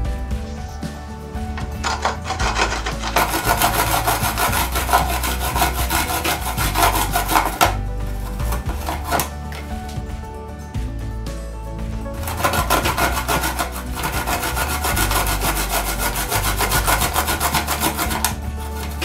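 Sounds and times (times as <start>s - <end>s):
garlic rasping on a grater: 1.8s - 9.3s, 12.2s - 19.0s.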